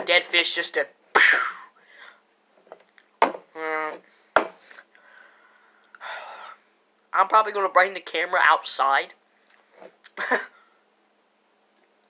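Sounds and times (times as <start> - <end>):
knocks on wooden tabletop: 3.2 - 3.5, 4.4 - 4.6
person humming: 3.6 - 4.0
soft breath: 4.0 - 6.8.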